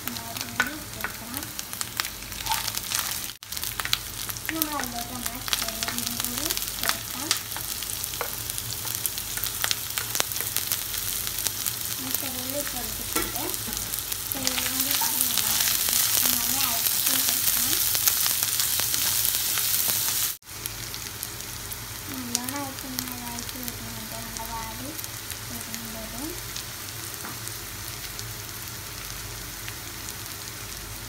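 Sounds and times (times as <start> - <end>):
vegetables sizzling in hot oil: 0.0 - 31.0.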